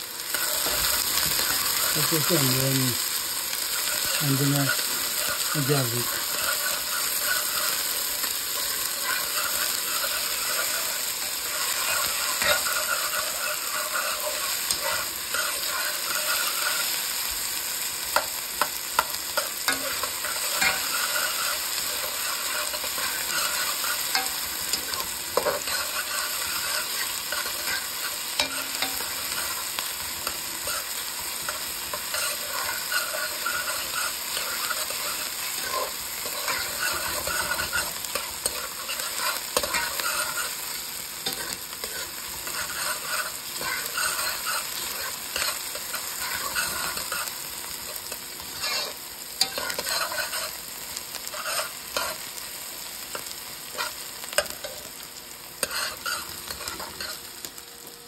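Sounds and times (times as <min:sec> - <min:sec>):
onions sizzling in a pot: 0:00.0 - 0:58.0
metal spoon scraping a pot: 0:06.1 - 0:16.8, 0:30.2 - 0:40.6, 0:41.2 - 0:47.3, 0:48.6 - 0:50.6.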